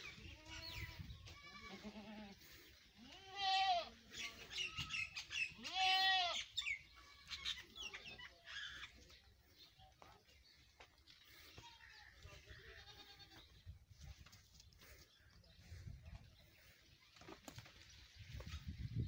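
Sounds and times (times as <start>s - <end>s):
goats bleating: 0.0s - 4.0s, 4.6s - 7.6s, 11.3s - 13.5s
birds chirping: 0.0s - 19.0s.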